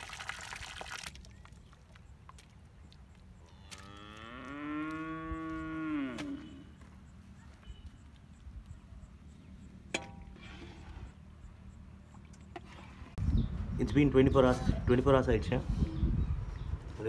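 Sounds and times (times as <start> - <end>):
cow mooing: 3.6 - 6.7.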